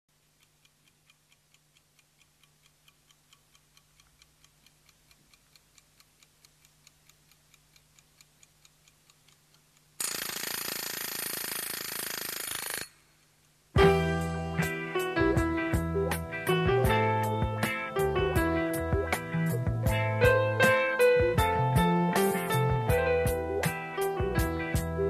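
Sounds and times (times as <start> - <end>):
clock ticking: 0.1 - 25.0
loud ringing rattle: 10.0 - 13.1.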